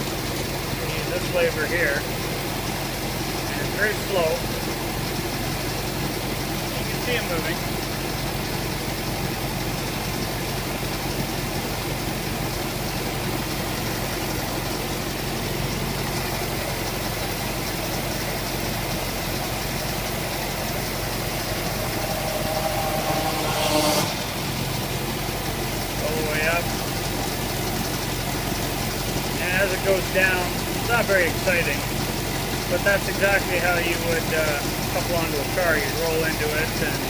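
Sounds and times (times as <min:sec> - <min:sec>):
rail vehicle engine idling: 0:00.0 - 0:37.0
loud whine: 0:19.5 - 0:28.1.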